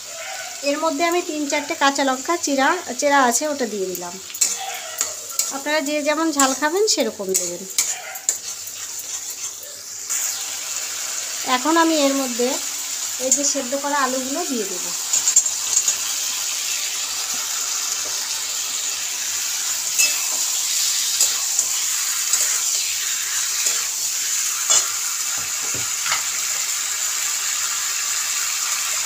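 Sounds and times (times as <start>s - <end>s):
oil sizzling in a pan: 0.0s - 29.0s
metal spatula scraping pan: 4.3s - 10.4s, 19.9s - 26.4s.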